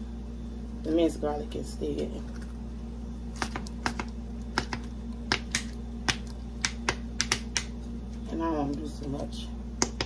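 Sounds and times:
steady low hum: 0:00.0 - 0:10.0
hot fat popping and crackling: 0:03.3 - 0:07.8.

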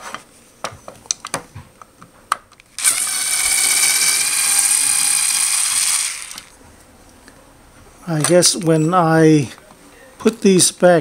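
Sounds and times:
cordless screwdriver whirring: 0:02.8 - 0:06.6.

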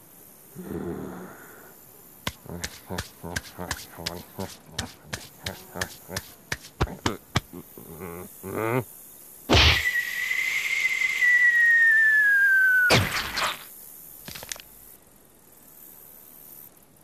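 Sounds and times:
cartoon whack: 0:09.5 - 0:10.0, 0:12.9 - 0:13.7
falling cartoon whistle: 0:09.5 - 0:13.6.

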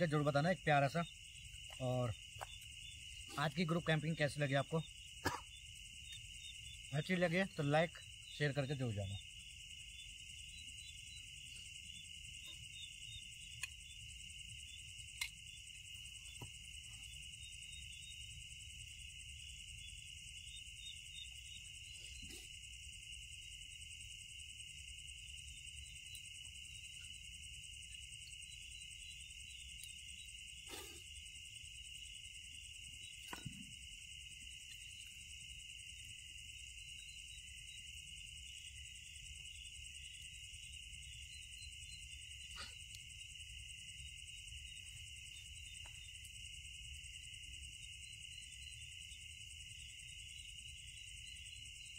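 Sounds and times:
crickets and insects trilling: 0:00.0 - 0:51.9.

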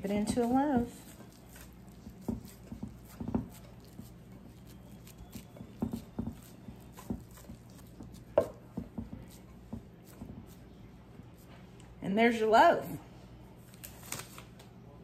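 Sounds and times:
hands patting meat: 0:00.0 - 0:10.7.

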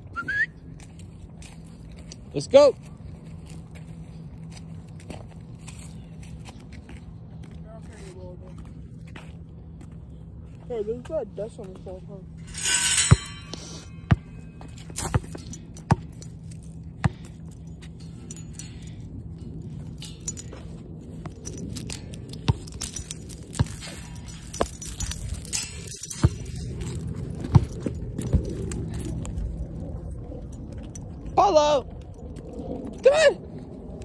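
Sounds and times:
low rumble: 0:12.1 - 0:34.0
metal chain leash jangling: 0:12.4 - 0:34.0.

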